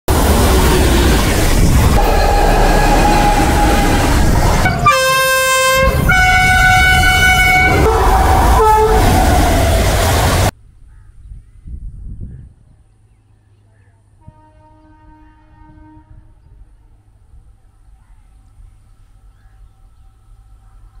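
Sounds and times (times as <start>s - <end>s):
train rumbling past: 0.1s - 10.6s, 12.5s - 21.0s
locomotive horn blast: 1.9s - 9.8s, 14.2s - 16.6s.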